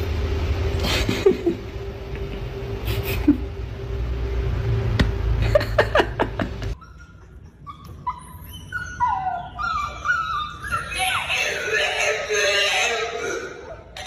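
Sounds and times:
steady low rumble: 0.0 - 6.8
dog whining: 6.8 - 14.0.

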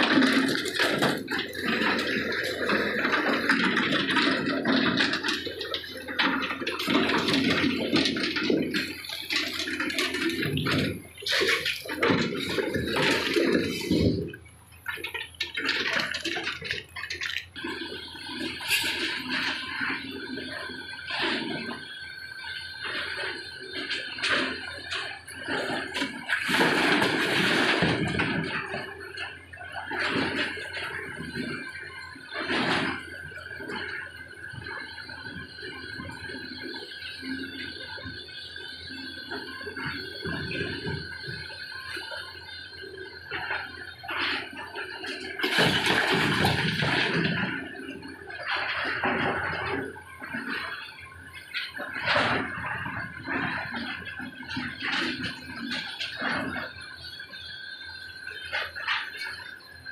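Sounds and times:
knocks and clatter: 0.0 - 59.5
excavator engine running: 0.0 - 59.9
rocks crashing into truck bed: 26.1 - 28.7, 45.4 - 47.7.

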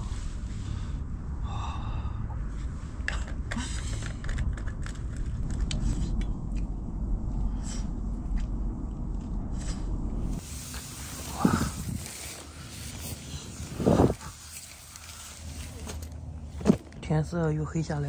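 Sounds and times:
wind on microphone: 4.2 - 14.5.

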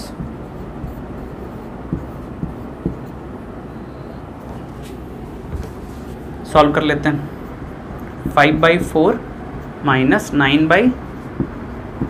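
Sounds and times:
marker writing on whiteboard: 0.0 - 3.4, 4.4 - 12.0
low background hum: 0.0 - 12.0
light taps: 11.4 - 12.0.

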